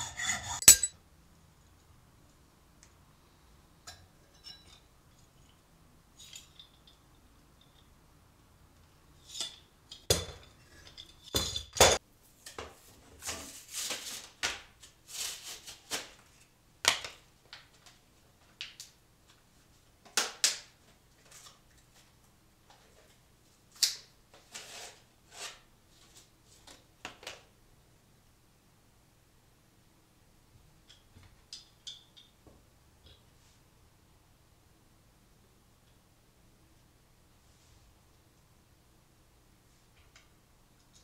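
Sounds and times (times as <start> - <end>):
metal saw clinking on wood: 0.0 - 1.0.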